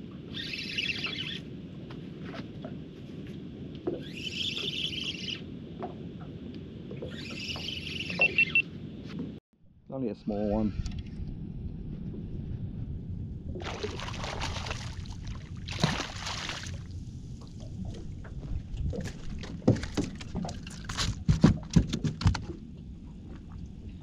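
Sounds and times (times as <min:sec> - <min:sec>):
fish splashing at water surface: 0:13.6 - 0:16.9.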